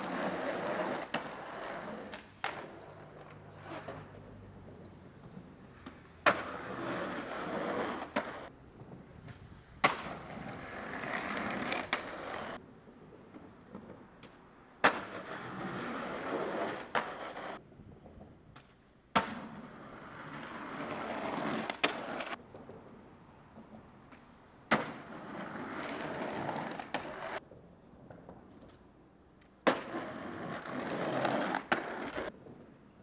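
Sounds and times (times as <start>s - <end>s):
skateboard clack: 0.0s - 12.6s, 13.2s - 32.8s
skateboard wheels rolling on concrete: 0.0s - 33.0s
skateboard landing smack: 9.8s - 10.2s, 14.8s - 15.2s, 18.6s - 19.5s, 24.7s - 25.1s, 29.6s - 30.1s.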